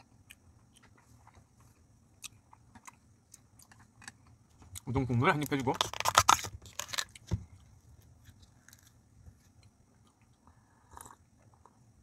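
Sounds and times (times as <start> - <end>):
chewing: 9.6 - 11.8.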